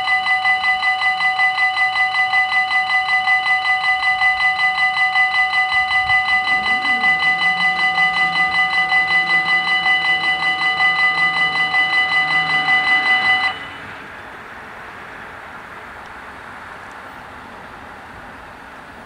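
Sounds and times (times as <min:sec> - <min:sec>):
level crossing bells ringing: 0:00.0 - 0:14.1
faint outdoor traffic noise: 0:00.0 - 0:19.0.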